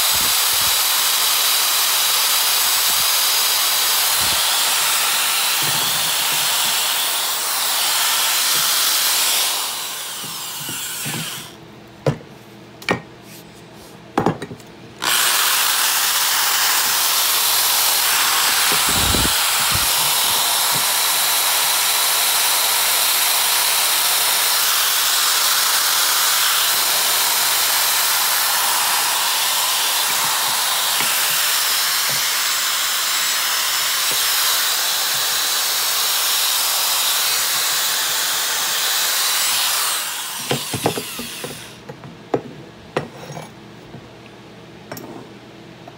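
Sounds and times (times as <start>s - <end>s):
sanding disc grinding metal: 4.1s - 11.5s, 24.5s - 41.6s.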